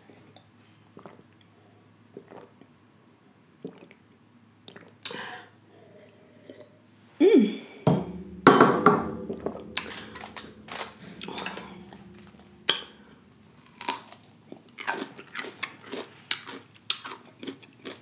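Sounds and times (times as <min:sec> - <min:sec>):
sipping and swallowing water: 0:02.1 - 0:02.7, 0:03.6 - 0:05.2.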